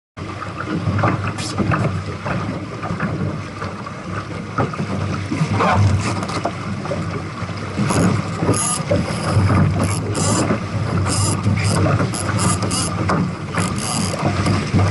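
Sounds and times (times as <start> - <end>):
water rushing along hull: 0.2 - 14.9
wind buffeting microphone: 4.9 - 14.9
small knocks: 7.8 - 14.9.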